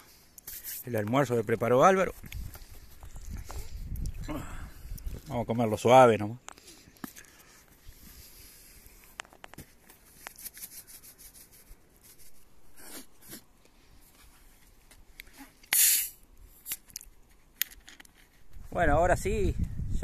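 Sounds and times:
short loud hiss: 0:15.7 - 0:16.8.

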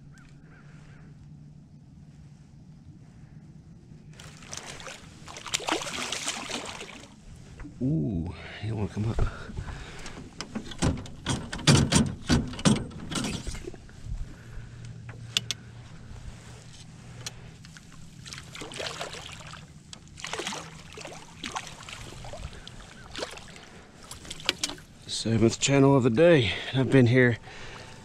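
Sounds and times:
fishing gear clattering: 0:24.0 - 0:24.9.

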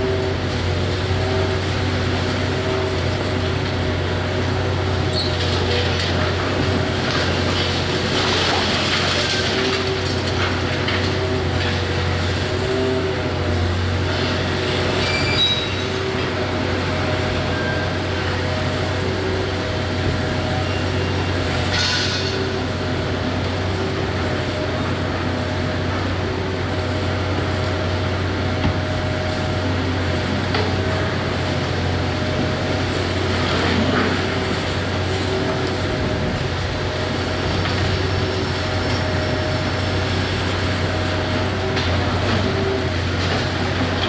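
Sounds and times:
excavator diesel engine drone: 0:00.0 - 0:44.0
hydraulic whine: 0:14.2 - 0:19.3
high metallic squeaks: 0:15.0 - 0:15.8.

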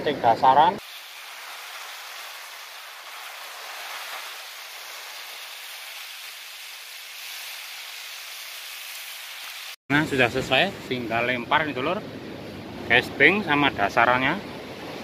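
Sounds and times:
steady hiss: 0:00.8 - 0:11.8.

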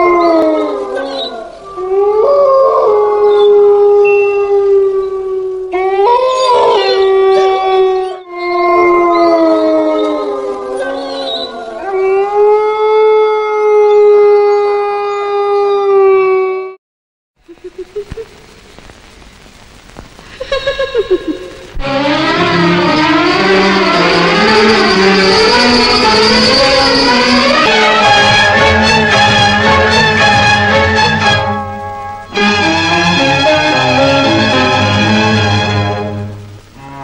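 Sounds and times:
dog howling: 0:00.0 - 0:16.8, 0:22.0 - 0:31.0
faint rising wail: 0:21.1 - 0:37.0.

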